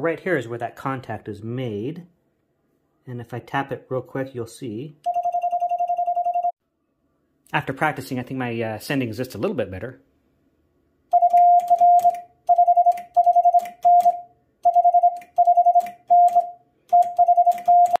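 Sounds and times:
morse code beeping tone: 5.0s - 6.6s, 11.1s - 18.0s.

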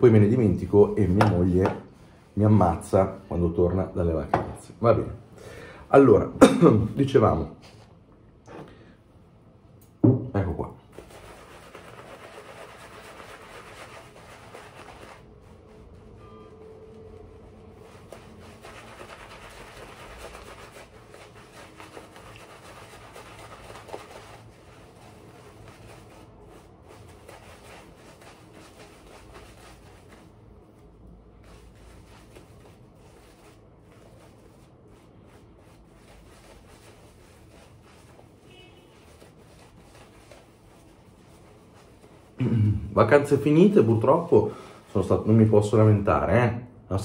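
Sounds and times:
shaving brush rubbing on face: 10.9s - 42.4s.

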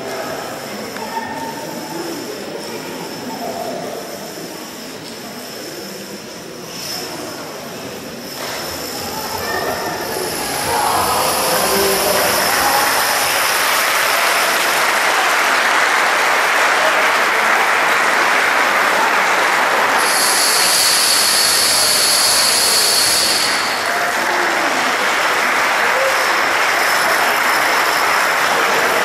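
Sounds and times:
bright hissy rush: 8.2s - 16.6s, 18.3s - 29.0s.

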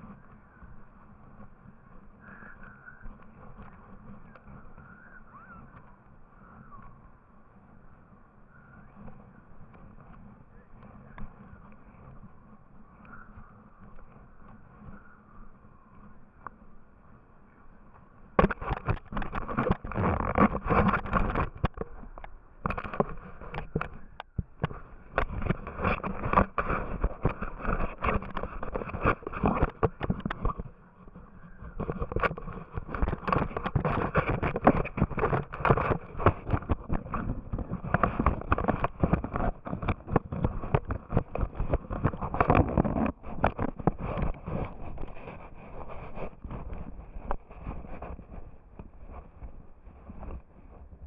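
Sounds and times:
camera rubbing on fabric: 18.4s - 51.0s.

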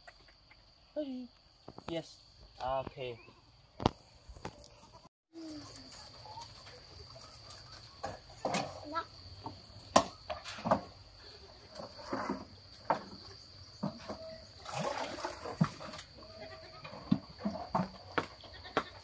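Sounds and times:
plastic buckets clattering: 6.5s - 18.2s
goats bleating: 16.2s - 16.8s, 18.4s - 19.0s.

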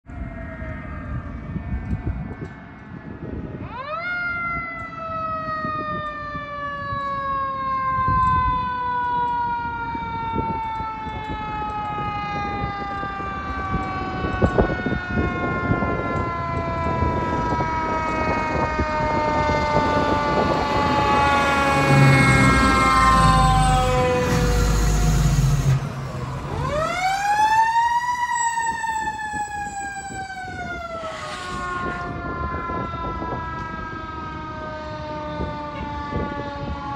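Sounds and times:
fire truck siren winding: 0.4s - 36.9s
truck engine rumbling: 11.4s - 32.8s.

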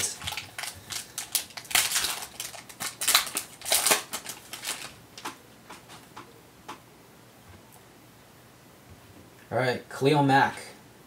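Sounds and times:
foil wrapper crinkling and tearing: 0.0s - 5.9s.

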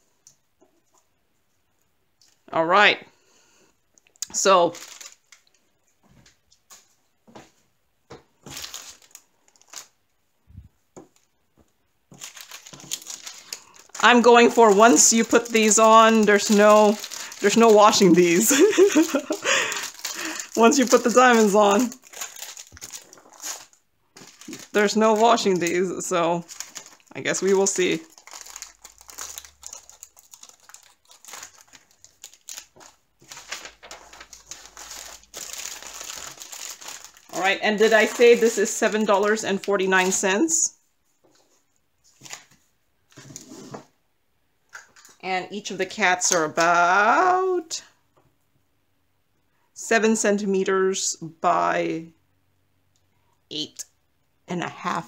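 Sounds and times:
plastic packaging rustling: 4.3s - 7.5s, 8.1s - 43.9s.

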